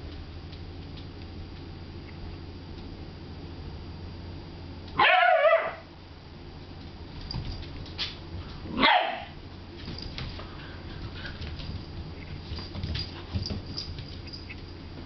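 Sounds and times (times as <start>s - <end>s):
puppy barking: 5.0s - 5.9s, 8.7s - 9.4s
claws ticking on tile floor: 9.8s - 14.8s.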